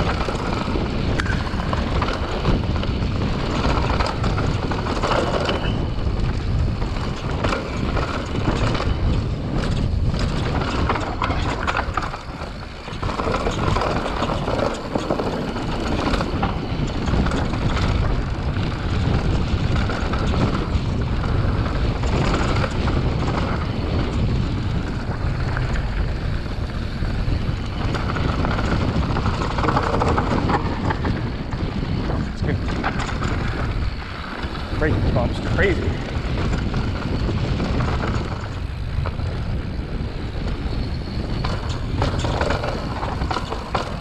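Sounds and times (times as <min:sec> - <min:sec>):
bike knocks and clatters: 0:00.0 - 0:44.0
bike tyres crunching on dirt: 0:00.0 - 0:44.0
wind buffeting microphone: 0:00.0 - 0:44.0.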